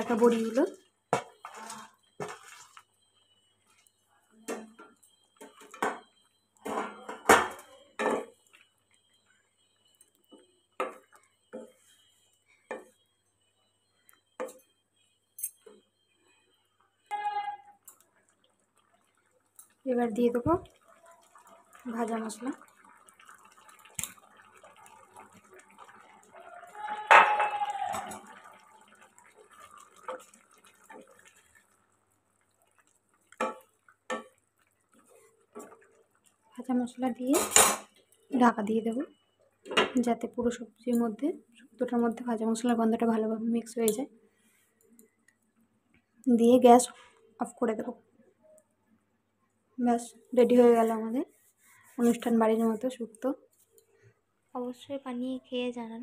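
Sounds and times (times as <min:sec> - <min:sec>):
curry bubbling and stirring: 0:00.0 - 0:04.0, 0:04.7 - 0:16.5, 0:17.8 - 0:40.4, 0:50.4 - 0:52.8.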